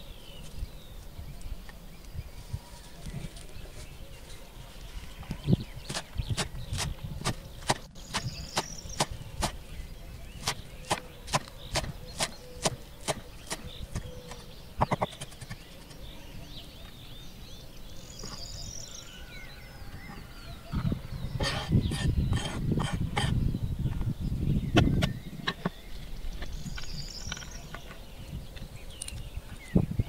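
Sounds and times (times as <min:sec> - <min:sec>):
faint bird chirps: 0:00.0 - 0:30.0
knife chopping on wooden board: 0:10.4 - 0:15.4.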